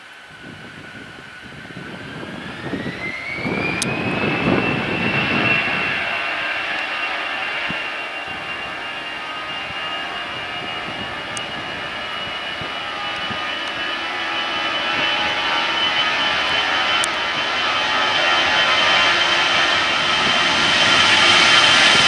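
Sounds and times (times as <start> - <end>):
jet engine whine: 0.0 - 22.0.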